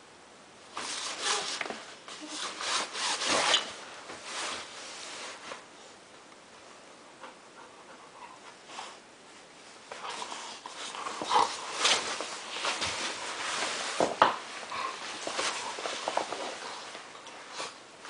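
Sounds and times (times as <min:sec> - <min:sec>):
dogs scuffling: 0:09.8 - 0:17.8
fabric tunnel rustling: 0:10.7 - 0:18.0.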